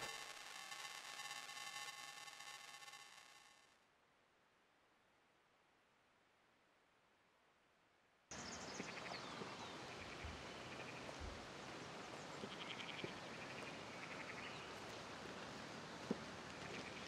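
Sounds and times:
steady background hiss: 8.3s - 17.0s.

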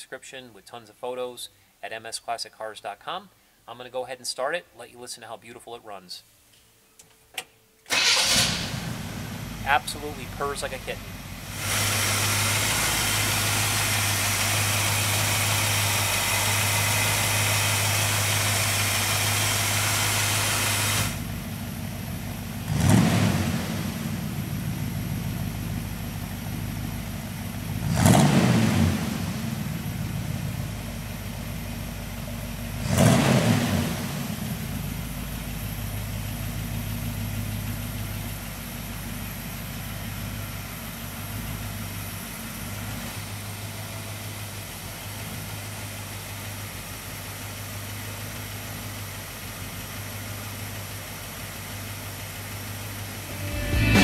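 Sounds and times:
engine revving: 8.0s - 10.8s, 11.4s - 21.3s, 22.6s - 24.4s, 27.7s - 30.0s, 32.8s - 34.6s
engine idling: 8.0s - 33.1s, 34.2s - 54.0s.

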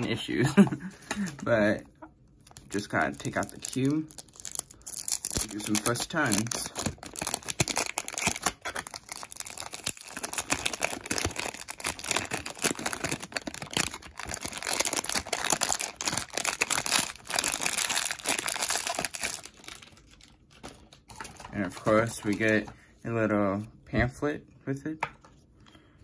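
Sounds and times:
plastic wrapping crinkling: 2.3s - 22.7s.

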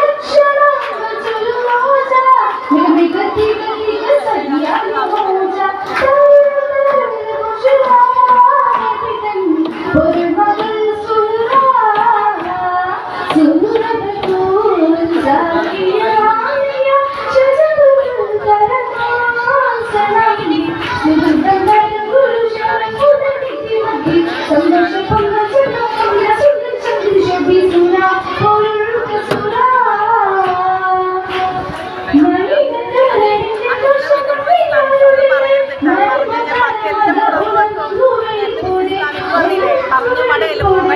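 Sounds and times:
female voice singing: 0.0s - 40.9s.

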